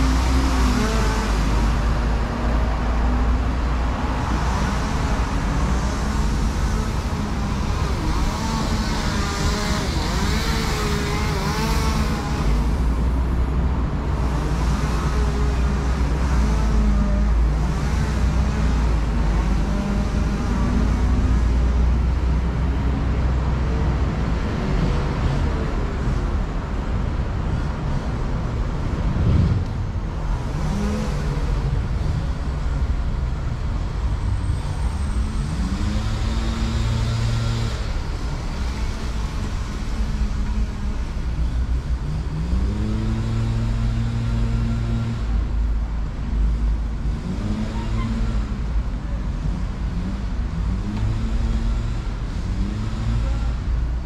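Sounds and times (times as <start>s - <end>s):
cars passing: 0.0s - 54.0s
steady low rumble: 26.2s - 30.8s.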